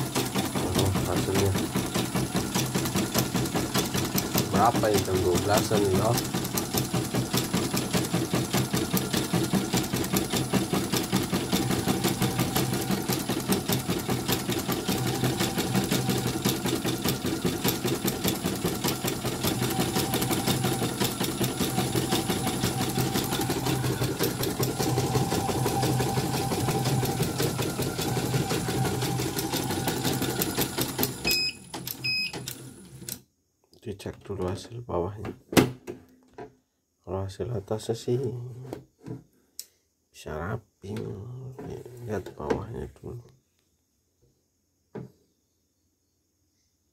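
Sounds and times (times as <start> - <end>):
embroidery machine stitching: 0.0 - 33.2.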